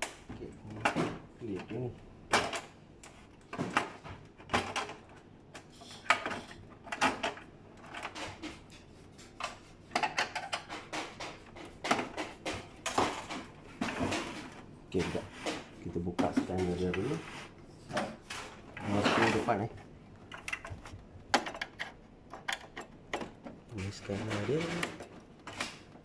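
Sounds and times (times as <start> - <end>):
plastic clicks and rattles: 9.4 - 17.1, 20.2 - 26.0.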